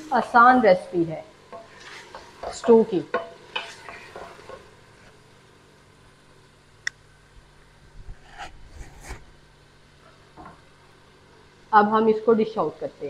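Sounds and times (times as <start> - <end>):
wooden spoon knocking metal pot: 2.4 - 4.4.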